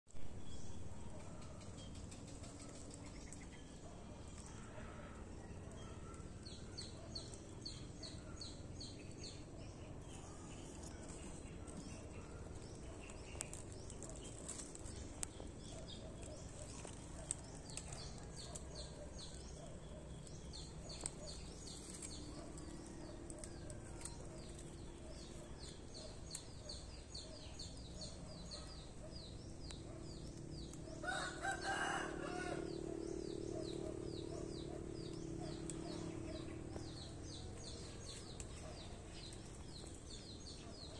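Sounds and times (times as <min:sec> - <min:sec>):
rooster crowing: 0:31.0 - 0:33.0.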